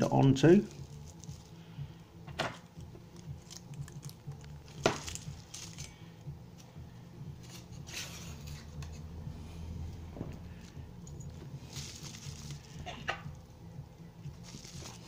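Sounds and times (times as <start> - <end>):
bubble wrap and tape rustling: 0.0 - 1.7, 2.6 - 6.8, 10.4 - 13.5, 14.2 - 15.0
steady low hum: 0.0 - 15.0.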